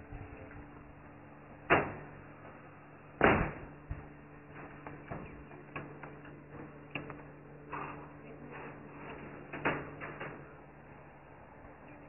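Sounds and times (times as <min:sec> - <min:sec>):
faint steady hum: 0:00.0 - 0:12.0.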